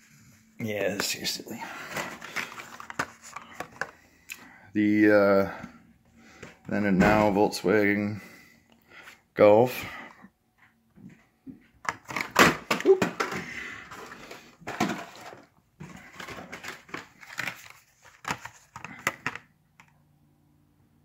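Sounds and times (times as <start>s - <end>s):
plastic packs clattering and crinkling: 0.8s - 4.1s, 11.8s - 19.9s.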